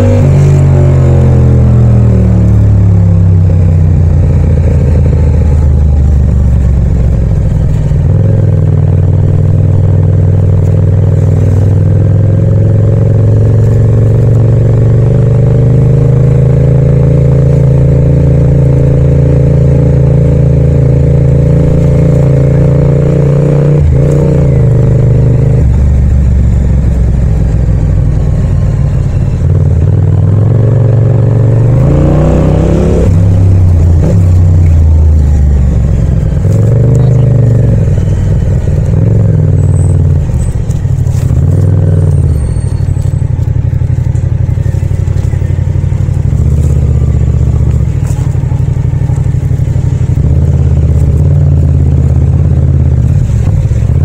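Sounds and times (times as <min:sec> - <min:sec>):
motorcycle engine running: 0:00.0 - 0:54.0.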